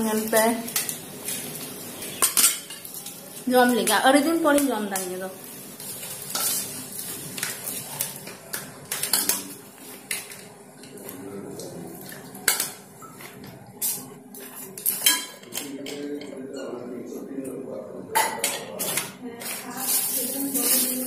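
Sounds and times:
spoon clinking on steel plate: 2.2 - 2.9.

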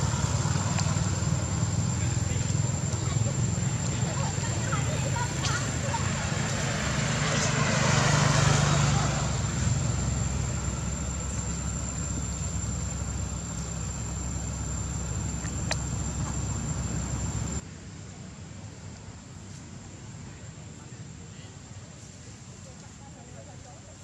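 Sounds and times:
low engine-like hum: 0.0 - 17.6
quiet hiss: 9.2 - 24.0.

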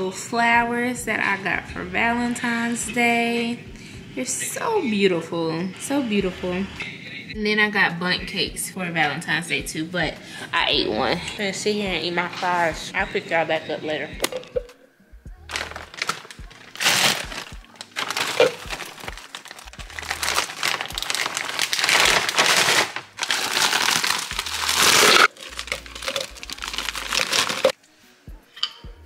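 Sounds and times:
frozen fruit dropping into plastic cup: 15.5 - 19.6, 20.2 - 27.8
plastic bags crinkling: 15.5 - 27.8.

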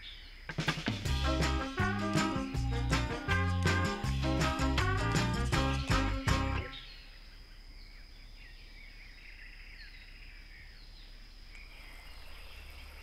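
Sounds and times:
small birds chirping: 0.0 - 13.0
high insect drone: 2.2 - 13.0.

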